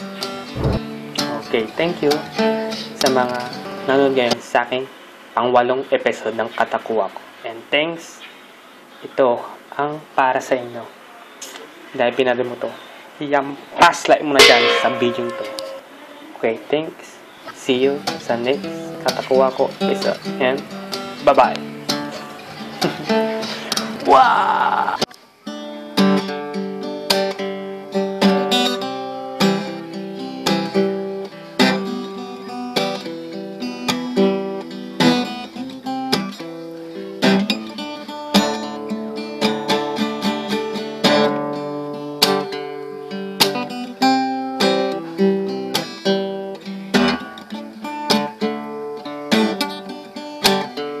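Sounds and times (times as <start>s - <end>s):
acoustic guitar strumming and picking: 0.0s - 4.5s, 13.9s - 16.0s, 17.6s - 51.0s.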